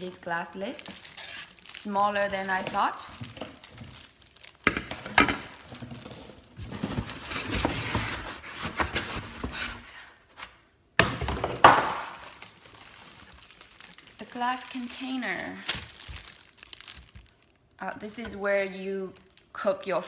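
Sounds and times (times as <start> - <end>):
paper packing scraping and rustling: 5.5 - 10.0.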